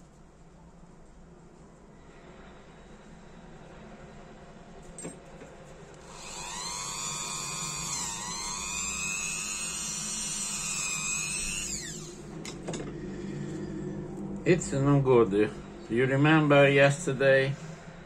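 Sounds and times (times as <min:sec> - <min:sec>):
rotary tool high-pitched whine: 0:06.0 - 0:12.6.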